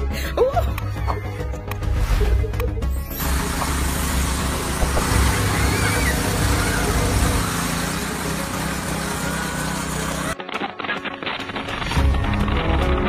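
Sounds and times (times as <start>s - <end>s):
pressure washer motor hum: 3.1s - 10.4s
high-pressure water spray hiss: 3.2s - 10.4s.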